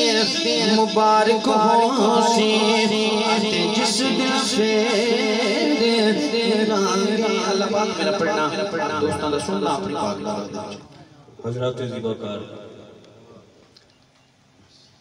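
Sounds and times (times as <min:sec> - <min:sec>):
man singing through loudspeakers: 0:00.0 - 0:11.0.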